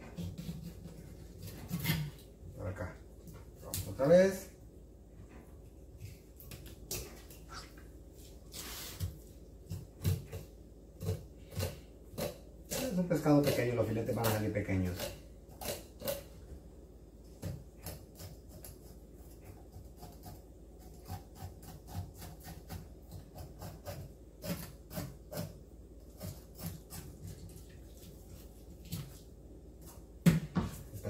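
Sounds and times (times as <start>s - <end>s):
knife scraping fish: 0.1s - 2.2s, 11.0s - 16.3s, 17.8s - 29.2s.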